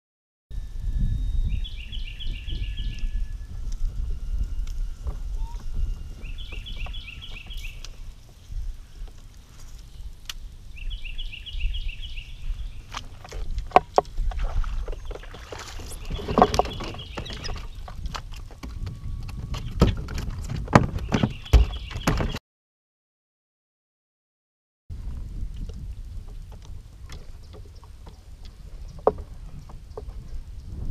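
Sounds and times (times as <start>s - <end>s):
wind: 0.5s - 22.4s, 24.9s - 30.9s
bird chirping: 1.1s - 13.2s, 14.8s - 19.9s, 20.9s - 22.4s
water rumbling around kayak: 1.5s - 22.4s, 24.9s - 30.9s
knocks and clicks from gear: 13.0s - 22.4s.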